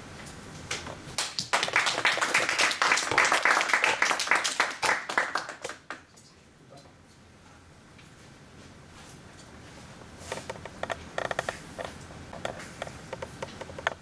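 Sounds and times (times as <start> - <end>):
small group clapping: 0.7 - 6.2.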